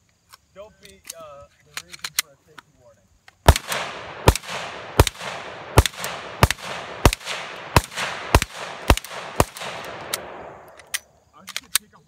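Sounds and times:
pistol shots: 3.5s - 11.0s.

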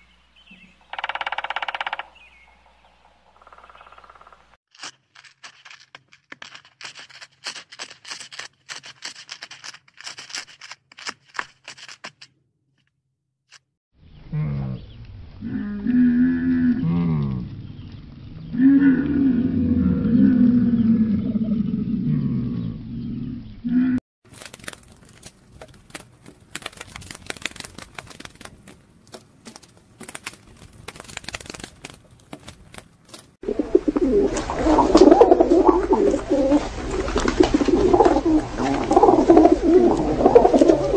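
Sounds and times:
camel moaning call: 15.4s - 17.6s
coypu chewing food: 24.2s - 40.9s
pigeon cooing: 33.4s - 40.9s.

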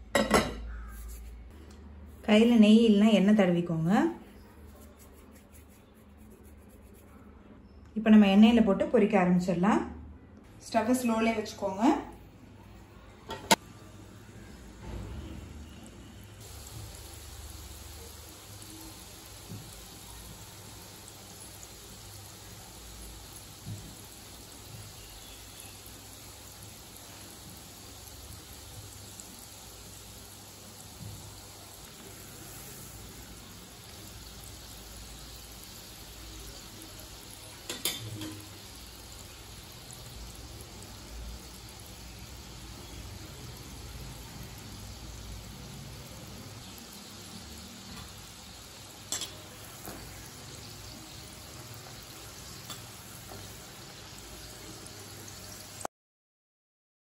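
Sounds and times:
dough deep-frying in oil: 13.0s - 55.9s.

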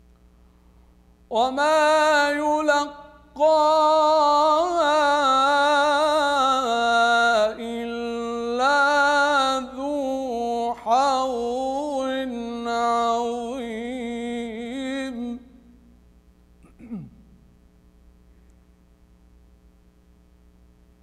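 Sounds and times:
man chanting melodically: 1.3s - 15.6s.

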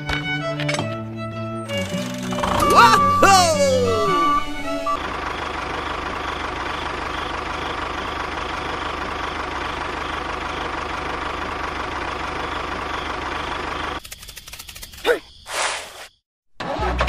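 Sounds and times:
tractor engine idling: 1.8s - 14.0s.

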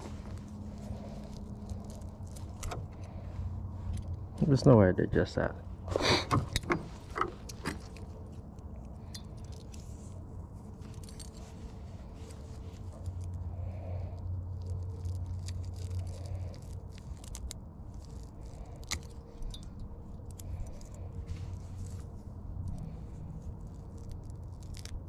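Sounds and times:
fishing gear clicking and rattling: 0.0s - 3.2s, 5.9s - 25.0s
low rumble: 0.0s - 25.0s.

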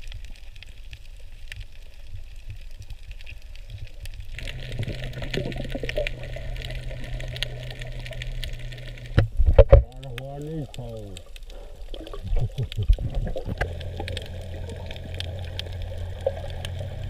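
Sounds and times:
low underwater rumble: 0.0s - 17.0s
small clicks: 0.0s - 17.0s
steady low hum: 4.3s - 11.8s, 13.0s - 17.0s.

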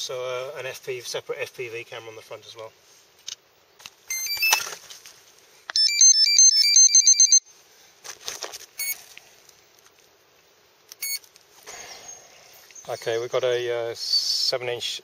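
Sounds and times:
electronic beeps: 5.7s - 7.4s
warbling electronic tones: 5.8s - 7.4s.

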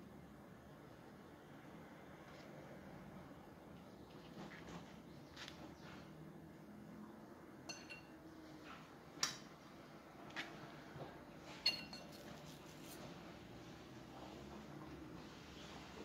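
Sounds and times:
light clinks of kitchenware: 7.6s - 8.3s, 11.5s - 12.4s.

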